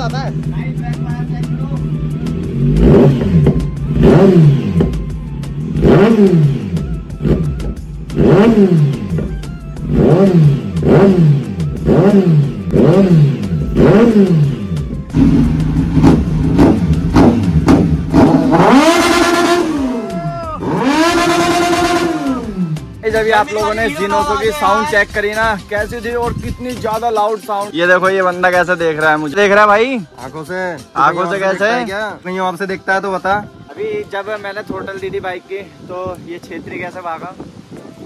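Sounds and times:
motorcycle engine revving: 0:00.0 - 0:23.1.

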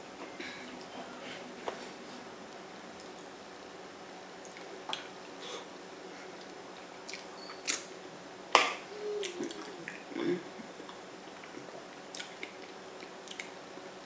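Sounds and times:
wet lip smacking: 0:09.2 - 0:10.1.

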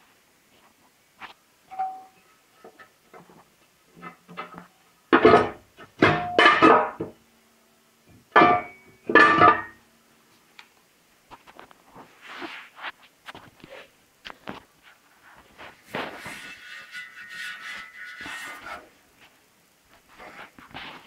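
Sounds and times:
loud metallic clanks ringing: 0:08.4 - 0:09.8.

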